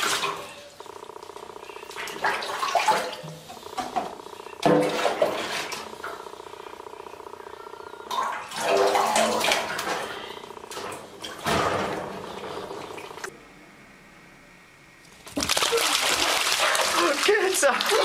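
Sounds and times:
water splashing in sink: 0:01.9 - 0:03.4, 0:04.6 - 0:05.9, 0:08.1 - 0:12.1, 0:15.1 - 0:18.0.

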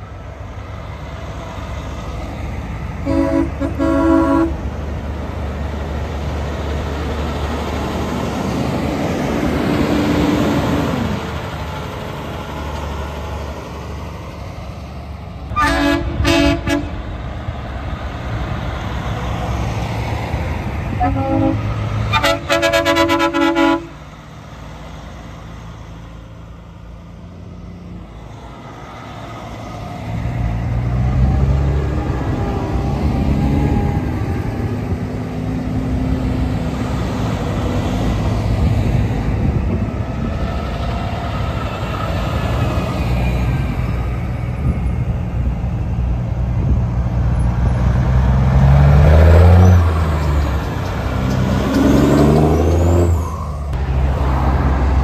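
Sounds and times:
diesel truck engines passing: 0:00.0 - 0:55.0
truck air horn blast: 0:03.0 - 0:04.6, 0:15.5 - 0:17.1, 0:20.9 - 0:24.0.

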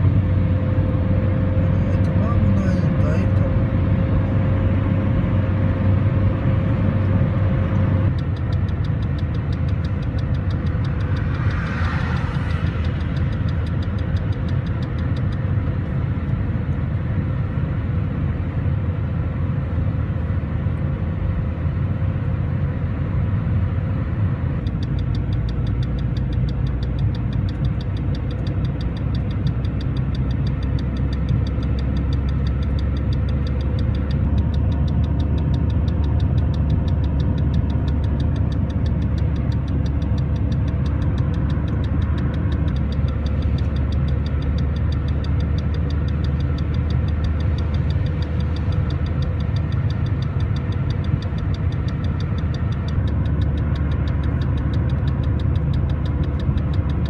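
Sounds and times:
car engine and road rumble: 0:00.0 - 0:57.0
fast regular ticking: 0:08.1 - 0:15.4, 0:24.7 - 0:57.0.

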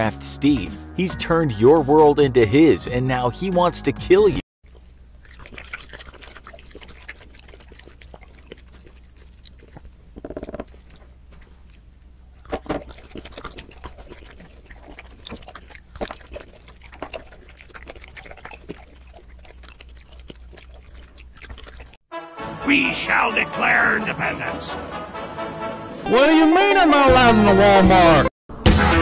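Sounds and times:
chewing crunch: 0:04.6 - 0:22.0.

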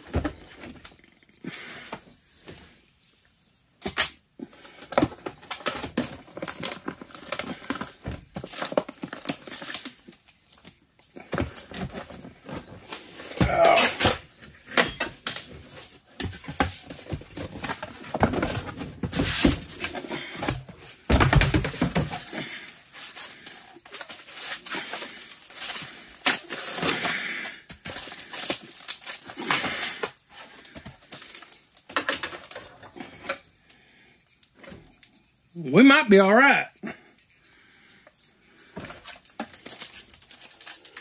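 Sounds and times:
cardboard and foam rustling: 0:04.7 - 0:14.6, 0:15.5 - 0:33.3, 0:38.6 - 0:41.0.

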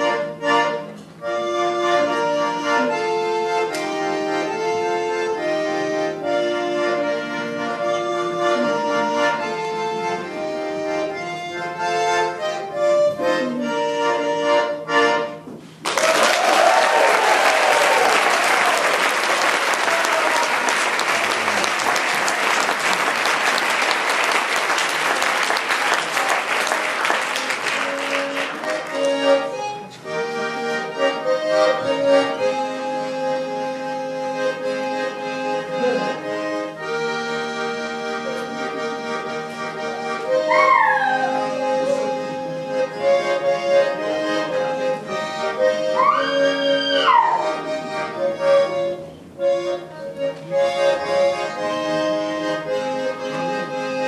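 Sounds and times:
button accordion playing: 0:00.0 - 0:15.8, 0:18.0 - 0:54.0
audience applause: 0:15.8 - 0:29.3.

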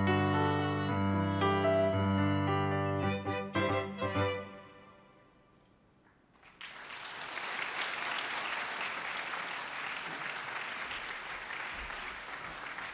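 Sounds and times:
audience applause: 0:06.4 - 0:12.9.

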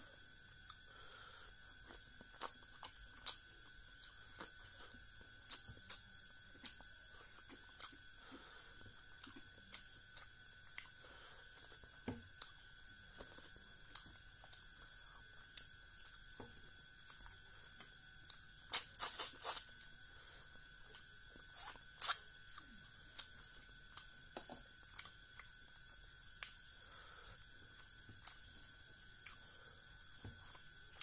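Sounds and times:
person chewing and smacking lips: 0:01.7 - 0:16.4, 0:17.0 - 0:19.9, 0:20.7 - 0:25.7, 0:27.7 - 0:31.0.

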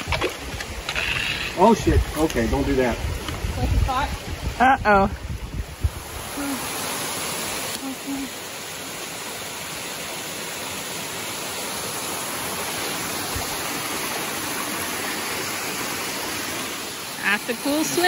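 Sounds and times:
waterfall rushing water: 0:05.8 - 0:18.0.

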